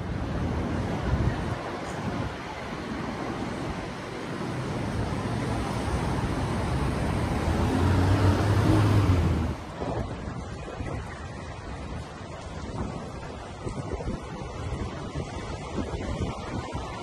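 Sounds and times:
street traffic: 0.0s - 17.0s
vehicle engine passing: 5.2s - 9.7s.

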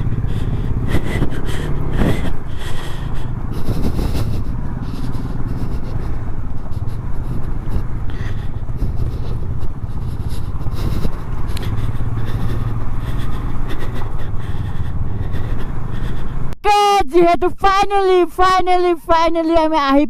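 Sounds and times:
motorcycle engine running: 0.0s - 16.6s.

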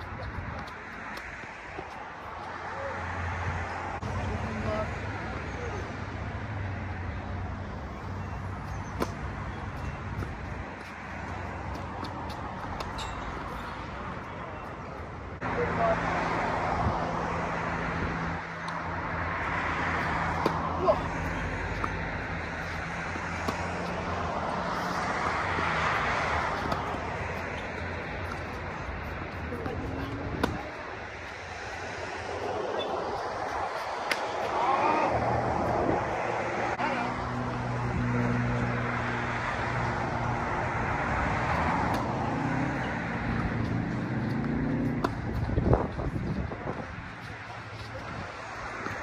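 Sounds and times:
engine and traffic rumble: 0.0s - 49.0s
tennis ball striking racket: 8.9s - 9.3s, 20.3s - 20.9s, 23.4s - 25.2s, 26.4s - 28.5s, 30.3s - 30.8s, 33.8s - 34.6s, 41.9s - 42.2s, 44.2s - 45.5s.

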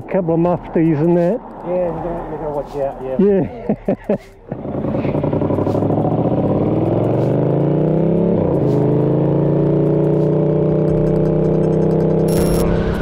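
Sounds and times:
motorcycle engine accelerating: 4.5s - 13.0s.

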